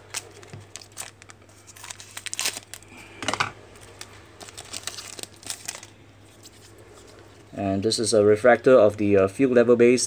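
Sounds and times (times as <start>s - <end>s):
foil wrapper crinkling: 0.0s - 7.2s
cards rustling: 0.0s - 7.4s.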